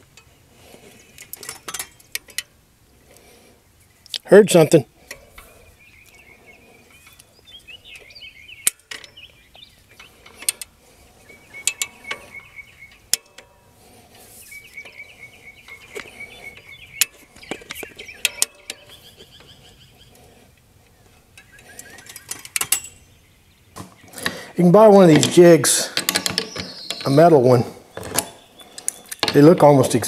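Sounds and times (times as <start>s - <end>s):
birds chirping: 0.0s - 30.0s.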